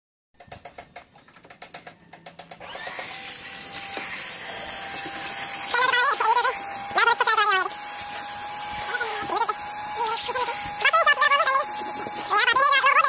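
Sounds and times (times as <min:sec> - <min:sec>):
vacuum cleaner motor whine: 0:02.6 - 0:13.0.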